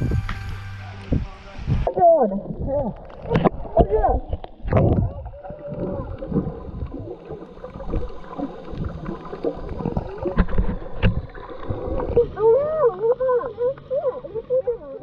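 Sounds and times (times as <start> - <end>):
muffled wavering hum: 0.0 - 15.0
underwater gurgling and sloshing: 0.0 - 15.0.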